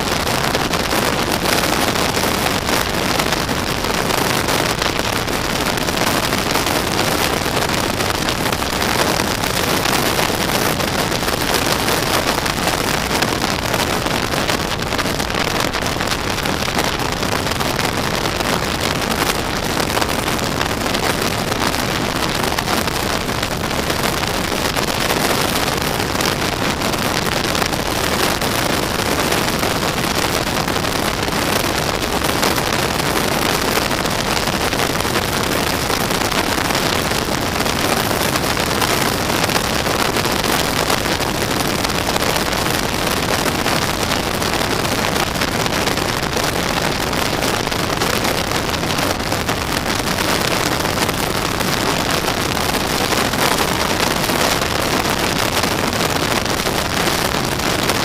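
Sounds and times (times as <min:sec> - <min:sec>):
wind on microphone: 0:00.0 - 0:58.0.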